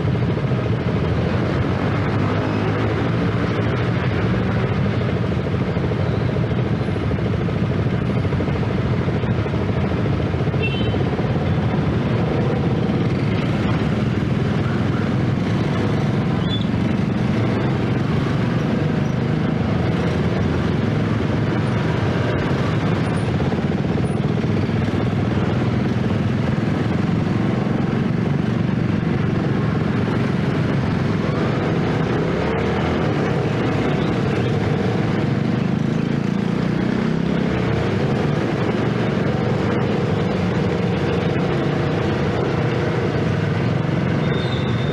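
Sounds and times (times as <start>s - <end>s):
motorcycle engine running: 0.0s - 44.9s
motorcycle traffic: 0.0s - 44.9s.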